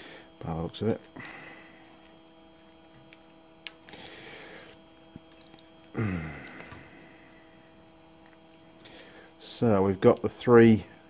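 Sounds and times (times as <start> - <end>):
steady electrical hum: 0.0 - 11.0
small parts clicking and scratching: 1.2 - 5.9
man murmuring: 5.9 - 6.9.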